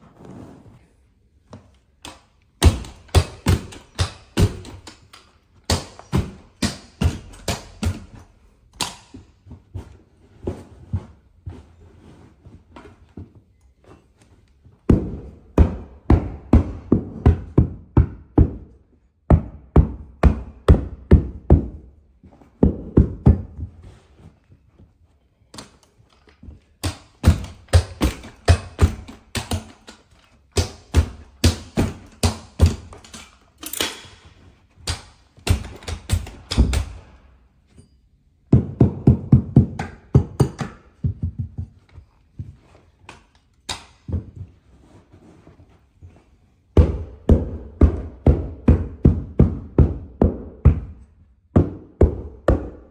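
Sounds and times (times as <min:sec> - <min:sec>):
hammer striking stair tool: 0:02.0 - 0:09.2, 0:26.8 - 0:37.2, 0:38.5 - 0:41.8.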